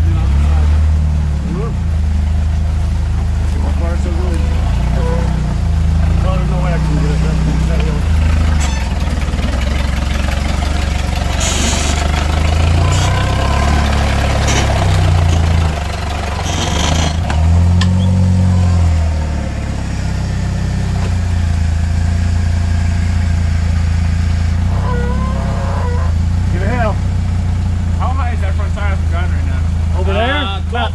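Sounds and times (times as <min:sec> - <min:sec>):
engine revving: 0:00.0 - 0:30.6.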